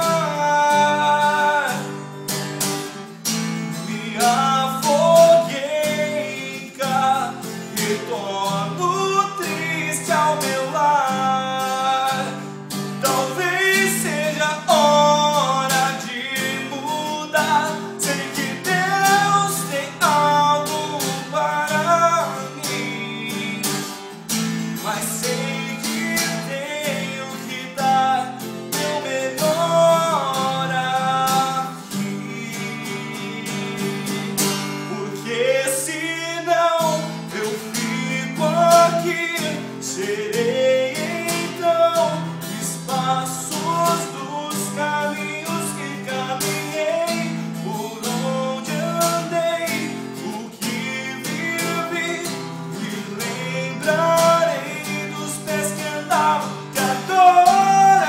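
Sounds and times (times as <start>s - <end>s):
acoustic guitar strumming: 0.0s - 58.0s
man singing: 0.0s - 58.0s.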